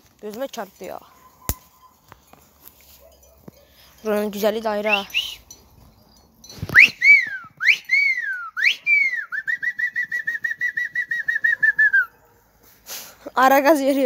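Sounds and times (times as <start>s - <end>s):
person whistling: 4.9s - 5.5s, 6.6s - 12.1s.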